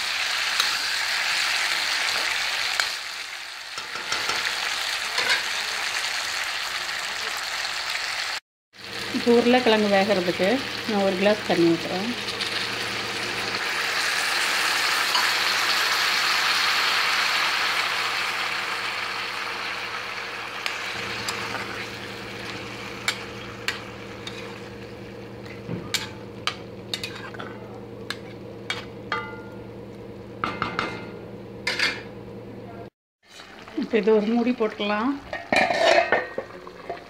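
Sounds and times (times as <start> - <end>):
water sizzling in hot oil: 0.0 - 27.4
steady low hum: 20.9 - 32.9.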